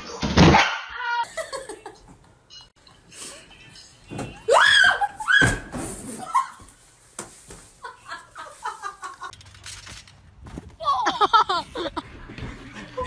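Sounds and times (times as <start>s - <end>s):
woman shrieking: 4.5s - 5.6s.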